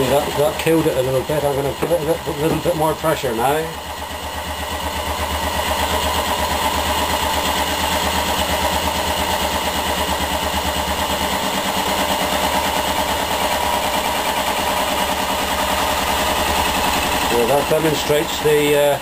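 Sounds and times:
stirling engine rhythmic beat: 0:00.0 - 0:19.0.

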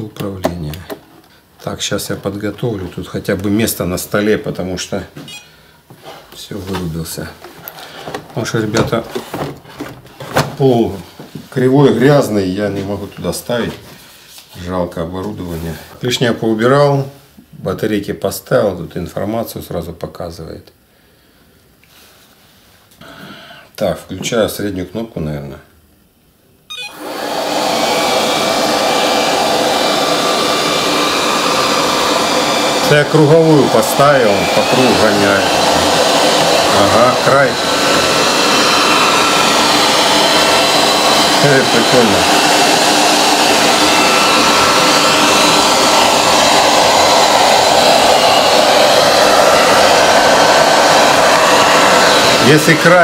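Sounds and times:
electronic chirp: 0:26.7 - 0:27.0
robot vacuum fan whirring: 0:26.7 - 0:53.0.

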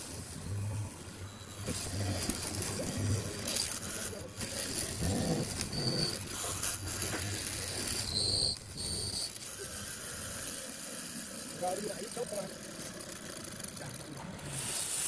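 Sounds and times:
short high squeals: 0:05.6 - 0:09.4.

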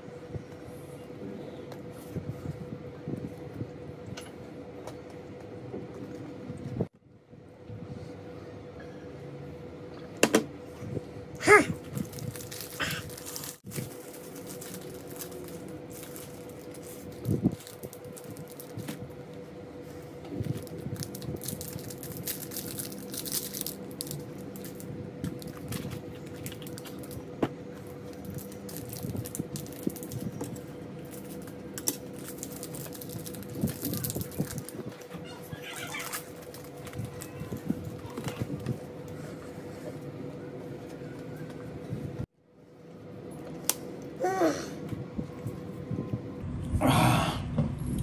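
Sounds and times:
plastic wrapper crinkling: 0:11.8 - 0:19.2, 0:20.3 - 0:38.9.

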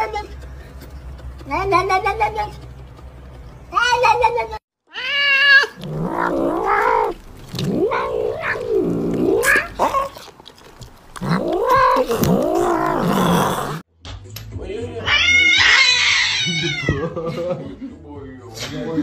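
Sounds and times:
cat yowling: 0:04.9 - 0:10.3, 0:11.1 - 0:13.8, 0:15.0 - 0:17.0.

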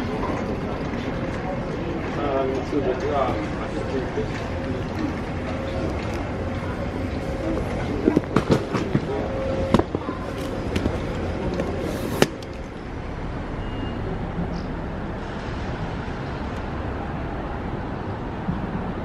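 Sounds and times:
road traffic noise: 0:00.0 - 0:19.0.

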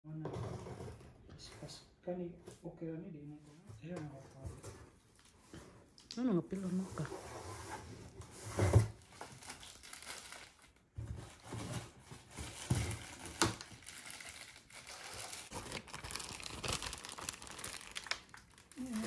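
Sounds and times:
plastic bag crinkling: 0:08.9 - 0:19.0.

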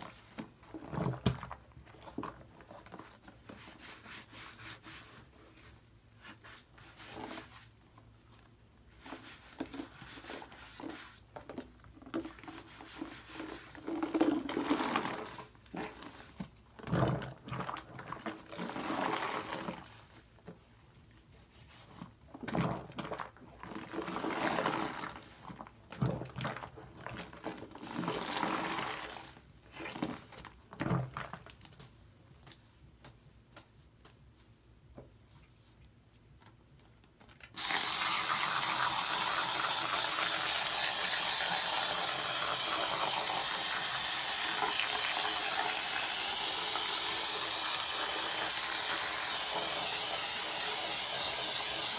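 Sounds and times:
wet squishing of foam sponge: 0:00.0 - 0:34.6.

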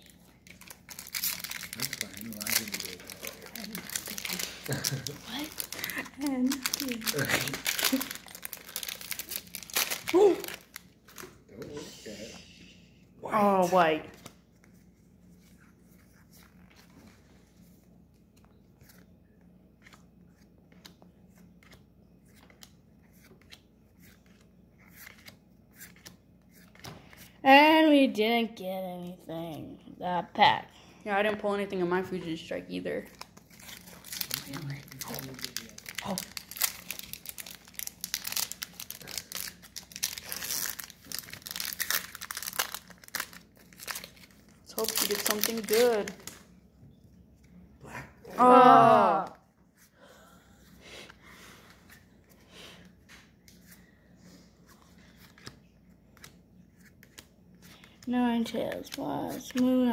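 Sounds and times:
foil wrapper crinkling and tearing: 0:00.0 - 0:11.3, 0:33.1 - 0:46.4, 0:56.9 - 0:59.8
soft steady hum: 0:00.0 - 0:59.9.

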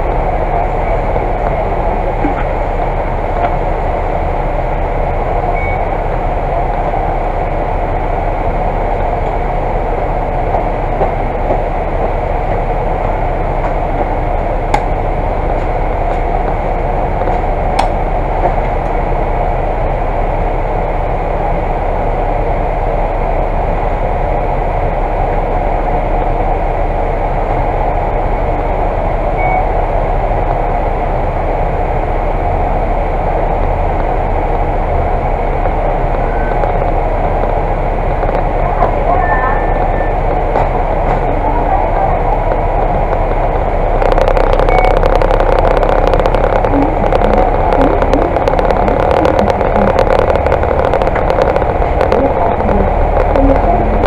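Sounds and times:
bus diesel engine idling: 0:00.0 - 0:54.0.

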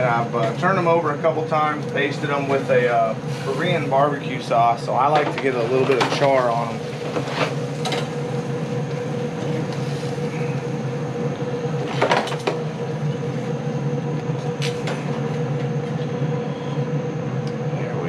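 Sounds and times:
mechanical hum with tone: 0:00.0 - 0:18.0.

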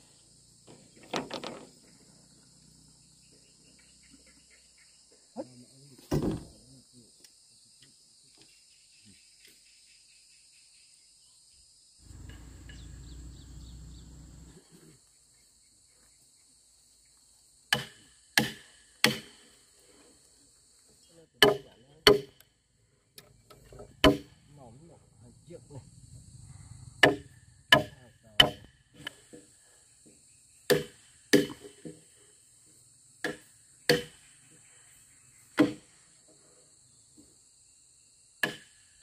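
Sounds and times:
insects chirring: 0:00.0 - 0:39.0
sharp blows on timber: 0:17.7 - 0:19.4, 0:21.4 - 0:22.4, 0:24.0 - 0:24.4, 0:27.0 - 0:29.2, 0:30.7 - 0:32.0, 0:33.2 - 0:34.3, 0:38.4 - 0:38.8.

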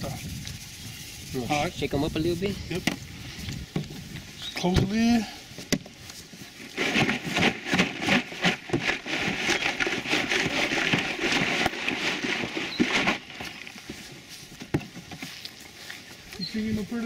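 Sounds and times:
crawfish rattling in plastic chest: 0:05.8 - 0:15.6.

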